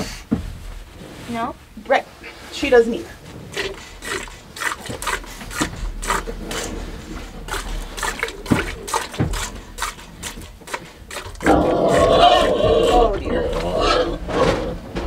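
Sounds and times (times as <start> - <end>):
milk squirting into metal bucket: 3.5 - 13.0.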